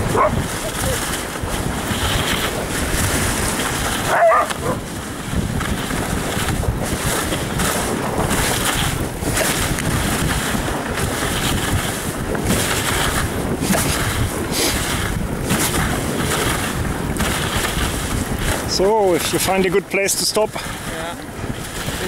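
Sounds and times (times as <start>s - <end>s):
sled runners sliding over snow: 0.0s - 22.0s
wind on microphone: 0.0s - 22.0s
dog yelp: 4.1s - 4.8s.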